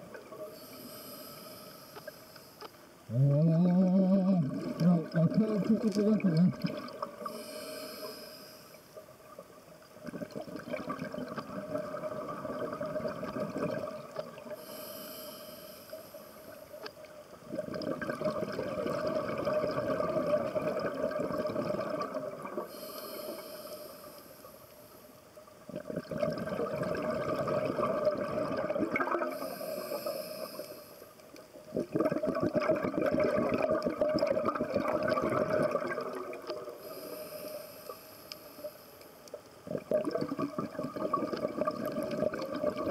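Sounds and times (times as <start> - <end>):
regulator hissing inhale: 0.5 - 2.7, 7.2 - 9.0, 14.5 - 16.6, 22.6 - 25.1, 29.3 - 31.1, 36.8 - 39.0
bubbling exhale: 6.5 - 8.9, 25.7 - 31.1, 31.7 - 38.9.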